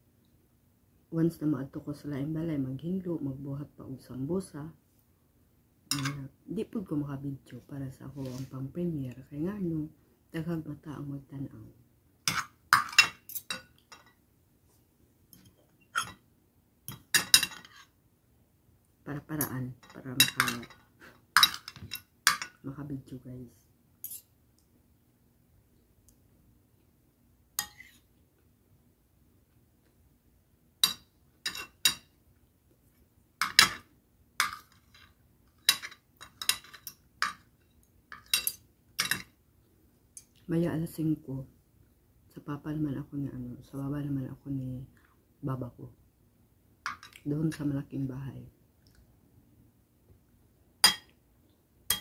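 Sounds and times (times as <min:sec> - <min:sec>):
cutlery clinking on a plate: 0:05.9 - 0:06.2, 0:12.3 - 0:14.2, 0:16.9 - 0:17.8, 0:21.4 - 0:22.6, 0:24.0 - 0:24.3, 0:27.6 - 0:28.0, 0:30.8 - 0:32.1, 0:33.4 - 0:37.5, 0:38.1 - 0:39.3, 0:50.8 - 0:51.1.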